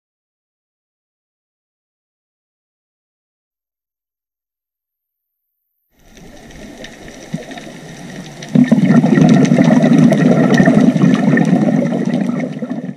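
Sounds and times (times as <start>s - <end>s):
diver's exhaled bubbles: 6.0s - 12.9s
faint underwater hiss: 6.0s - 12.9s.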